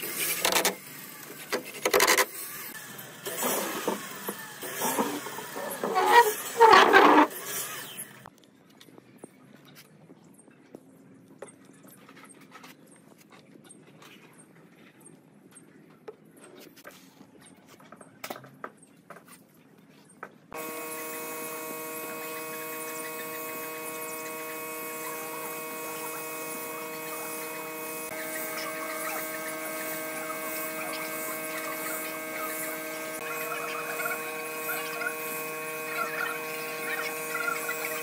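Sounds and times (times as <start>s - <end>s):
steady hum: 20.6s - 38.0s
spray gun hissing: 20.8s - 38.0s.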